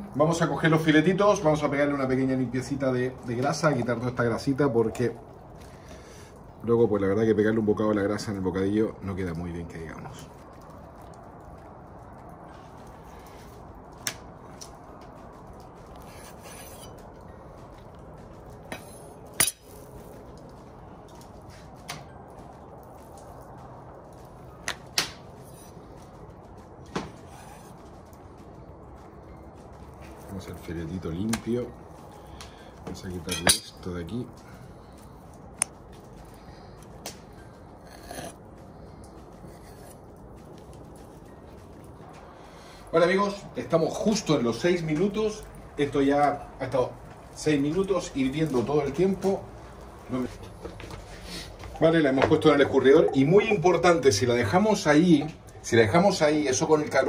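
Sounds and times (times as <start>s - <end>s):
low background noise: 0.0s - 57.0s
steady background noise: 0.0s - 57.0s
knife scraping cutting board: 16.0s - 17.0s.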